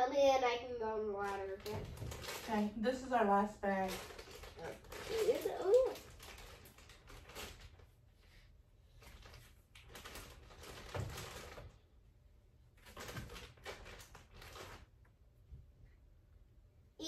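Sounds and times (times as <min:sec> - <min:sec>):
yarn rustling and handling: 0:03.6 - 0:11.8.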